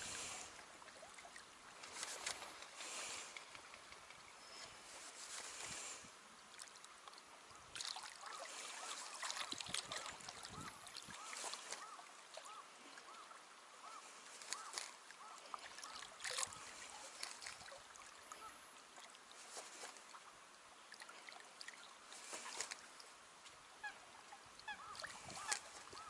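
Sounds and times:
water lapping: 0.0 - 26.0
waterfowl calling: 8.2 - 17.5, 23.8 - 26.0.

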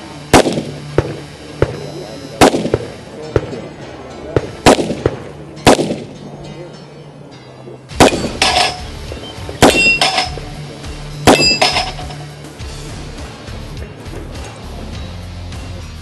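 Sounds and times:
steel target clanging: 7.9 - 12.5
revolver shots: 8.0 - 8.9, 9.5 - 10.6, 11.3 - 12.2.

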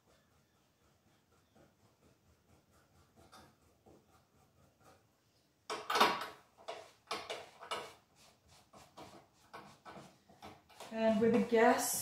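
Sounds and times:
scrapes and rustles: 6.6 - 12.0.

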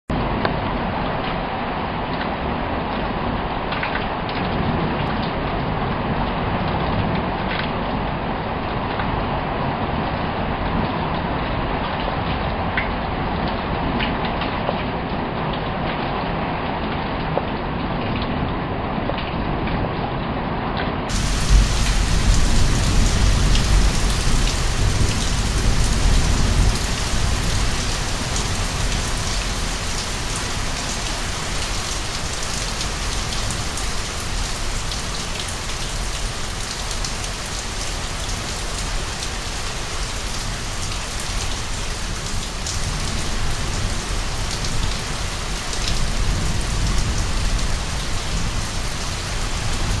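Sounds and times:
heavy rain falling: 21.1 - 50.0.

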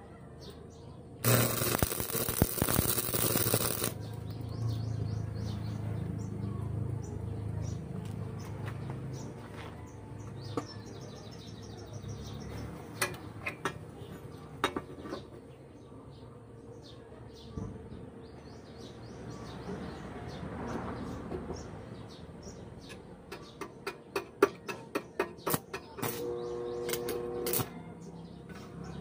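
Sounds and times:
steel pieces tapping and clicking: 1.2 - 4.0.

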